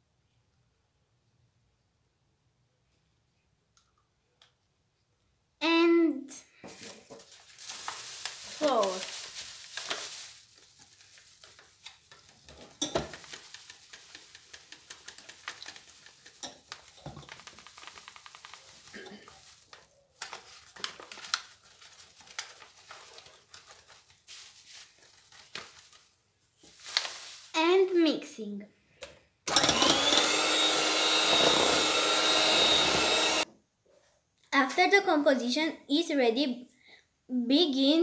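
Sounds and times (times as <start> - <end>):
plastic bag rustling: 6.6 - 27.9.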